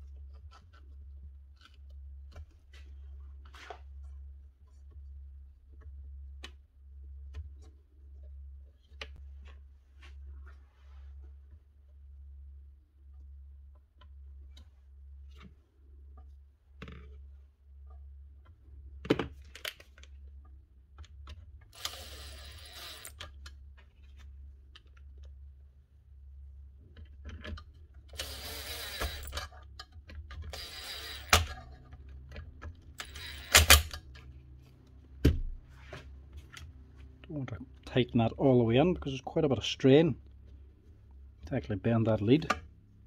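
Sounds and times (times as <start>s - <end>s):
tools clicking and knocking: 27.0s - 34.2s.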